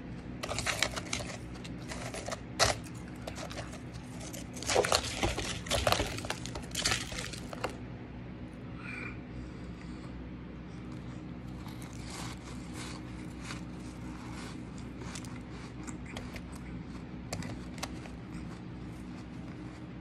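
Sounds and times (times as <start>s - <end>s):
crunching shaved ice: 0.3s - 7.8s, 11.4s - 19.9s.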